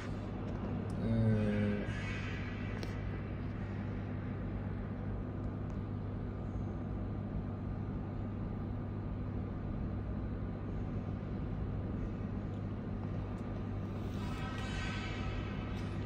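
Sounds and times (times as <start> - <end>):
machine or fan humming: 0.0 - 16.0.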